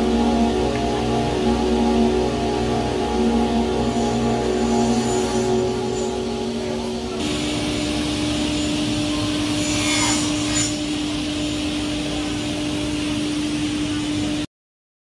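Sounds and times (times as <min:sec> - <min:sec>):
panel saw humming and hissing: 0:02.9 - 0:14.4.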